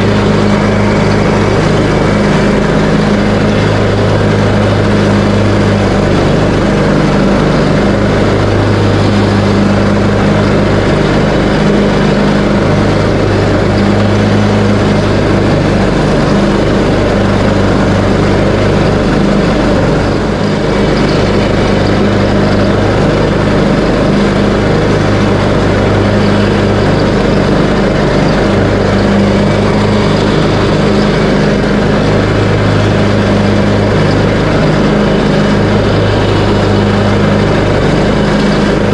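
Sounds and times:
riding lawn mower engine running: 0.0s - 38.9s.

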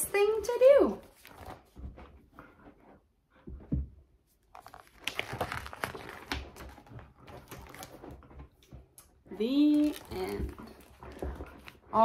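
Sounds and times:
book pages rustling: 0.9s - 2.1s, 4.3s - 9.0s, 9.6s - 12.0s.

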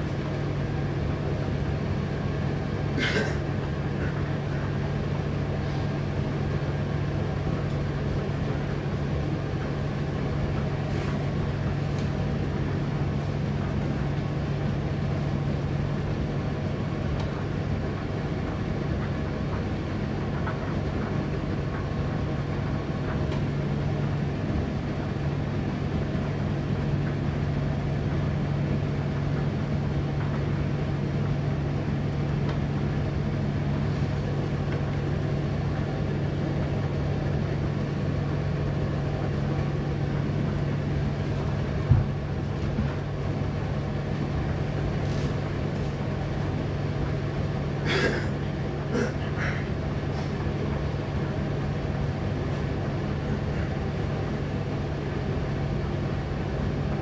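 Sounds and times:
tumble dryer running: 0.0s - 57.0s
brief knock in dryer: 41.8s - 42.2s.

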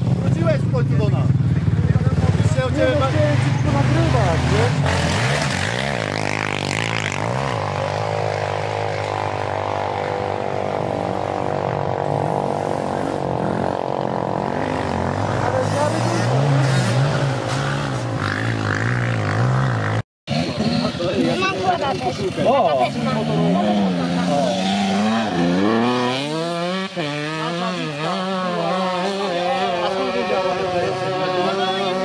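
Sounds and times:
motorcycle engines idling: 0.0s - 4.9s, 6.3s - 24.4s.

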